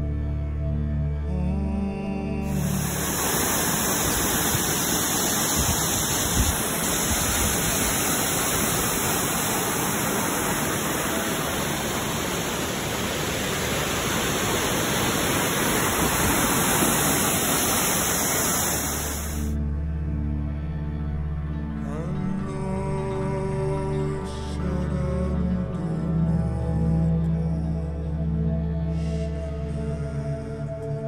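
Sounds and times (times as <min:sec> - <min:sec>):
waterfall rushing over rocks: 0:02.5 - 0:19.6.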